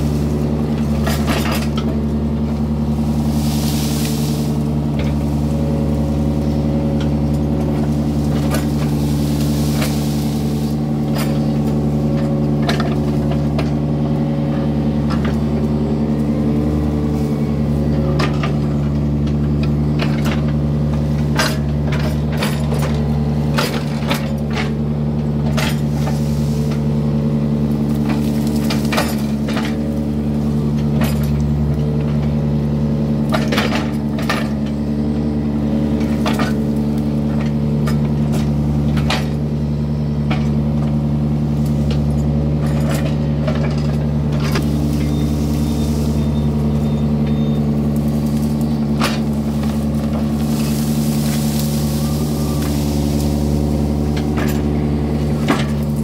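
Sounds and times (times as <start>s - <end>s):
diesel engine running: 0.0s - 56.0s
metallic clanks from excavator bucket: 17.9s - 24.8s, 25.4s - 26.8s, 30.7s - 32.4s, 33.2s - 34.9s, 41.7s - 56.0s.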